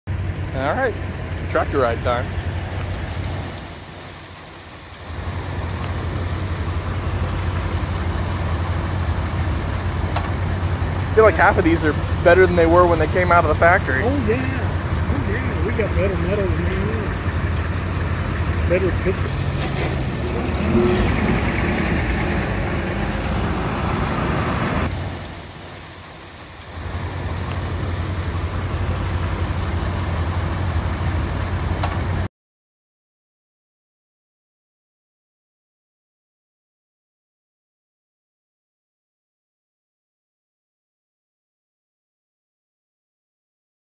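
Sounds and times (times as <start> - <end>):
tractor engine low rumble: 0.1 - 32.3.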